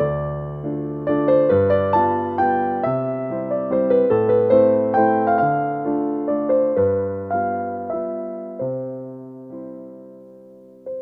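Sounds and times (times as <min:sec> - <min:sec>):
gentle piano melody: 0:00.0 - 0:11.0.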